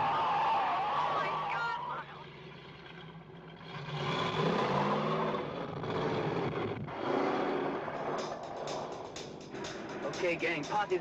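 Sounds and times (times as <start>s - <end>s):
car engine revving: 2.3s - 11.0s.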